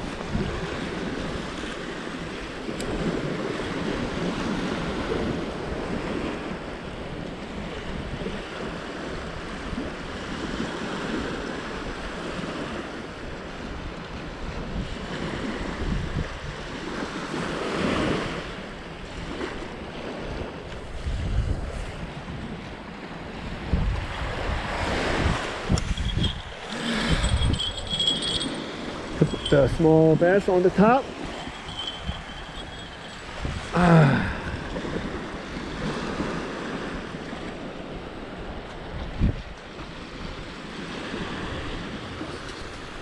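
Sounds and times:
waves washing on sandy beach: 0.0s - 43.0s
wind buffeting microphone: 18.3s - 22.8s, 23.4s - 43.0s.

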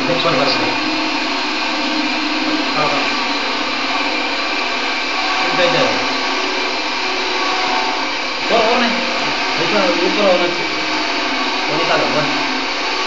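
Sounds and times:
small motor whirring: 0.0s - 13.0s
person speaking: 8.5s - 10.7s.

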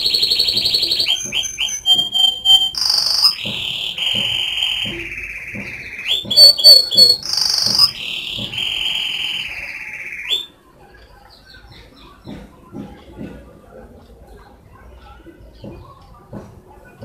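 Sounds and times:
canary singing trills: 0.0s - 12.3s.

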